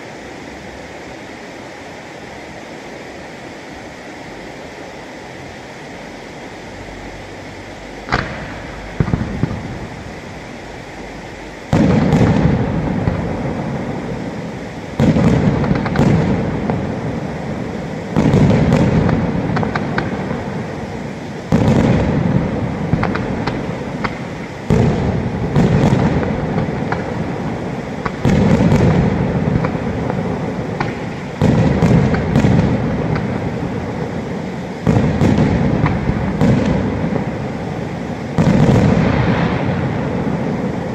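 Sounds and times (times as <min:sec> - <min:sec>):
firework pops and crackles: 0:08.0 - 0:10.2, 0:11.7 - 0:40.9
firework booms echoing: 0:08.1 - 0:10.4, 0:11.7 - 0:40.9.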